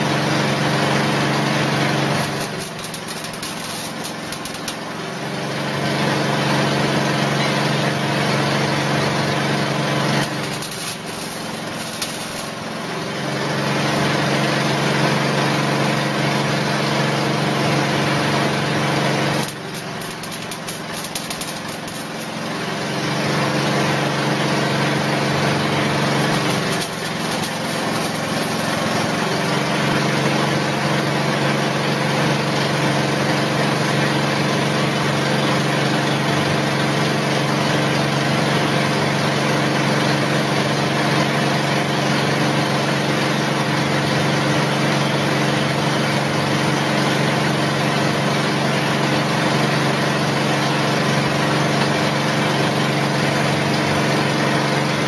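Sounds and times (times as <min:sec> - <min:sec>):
motor-driven machine humming: 0:01.6 - 0:05.2, 0:09.3 - 0:13.2, 0:18.2 - 0:30.5.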